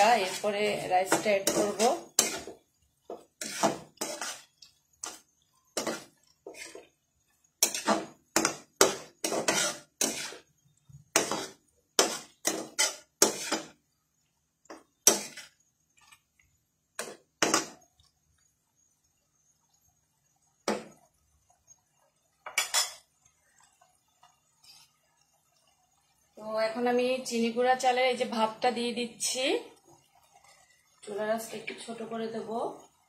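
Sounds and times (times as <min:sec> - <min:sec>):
spatula scraping metal pan: 0:00.0 - 0:13.8, 0:14.7 - 0:16.3, 0:24.6 - 0:25.0.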